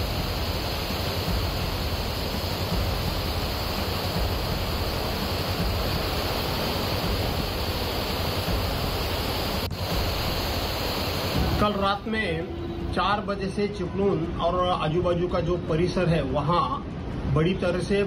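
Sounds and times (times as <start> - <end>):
heavy rain and floodwater rushing: 0.0 - 13.0.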